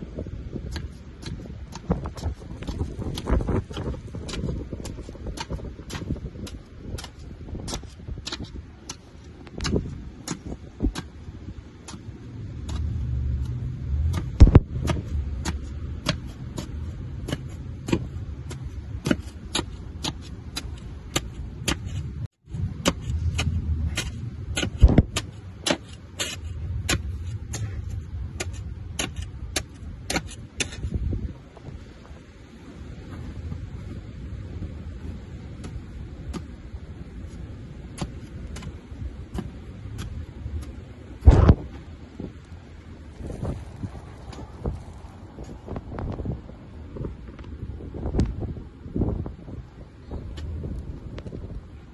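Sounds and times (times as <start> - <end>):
low rumble: 11.2 - 19.1, 20.4 - 47.3
snow shovel scraping: 22.8 - 31.0.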